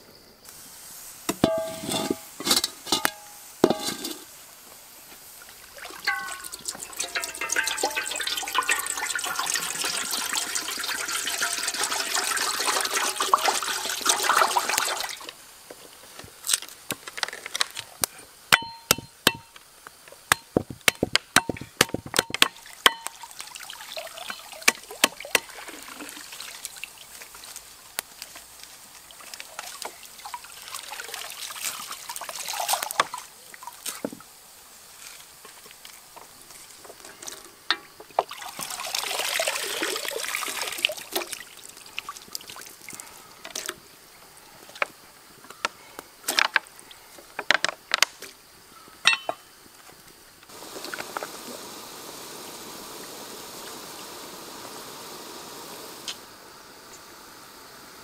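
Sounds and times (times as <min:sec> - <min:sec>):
water pouring into a wok: 0:05.5 - 0:15.4, 0:22.6 - 0:33.9, 0:36.9 - 0:43.7.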